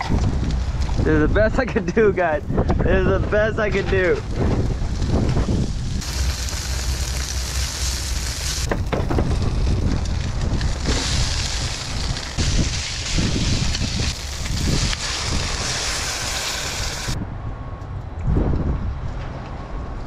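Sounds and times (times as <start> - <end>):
wind buffeting microphone: 0.0 - 20.0
food sizzling in a frying pan: 5.8 - 8.7, 10.7 - 17.2.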